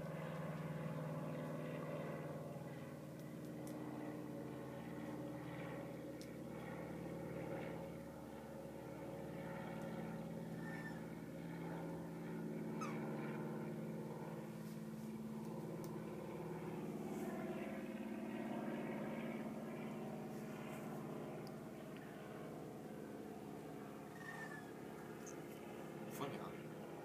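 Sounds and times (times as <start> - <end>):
low mechanical hum: 0.0 - 27.0
faint bird chirps: 10.6 - 11.0, 12.8 - 13.0, 24.1 - 25.4.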